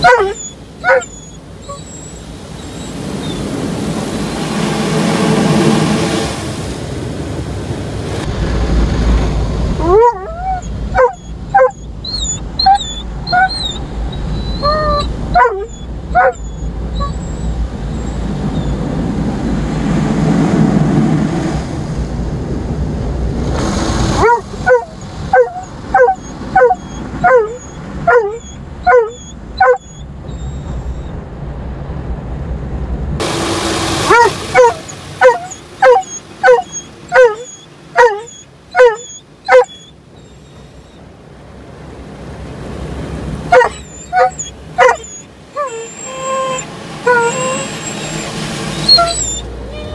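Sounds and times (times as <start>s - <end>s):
dog barking: 0.0s - 1.9s, 9.8s - 13.8s, 14.6s - 17.1s, 24.2s - 29.9s, 34.0s - 39.9s, 43.5s - 47.8s, 48.8s - 49.9s
dog whining: 0.0s - 3.5s, 9.8s - 18.8s, 24.2s - 31.2s, 34.1s - 41.1s, 43.5s - 49.9s
car wash water rushing: 0.0s - 9.8s, 23.4s - 26.6s, 33.2s - 39.6s, 41.1s - 49.9s.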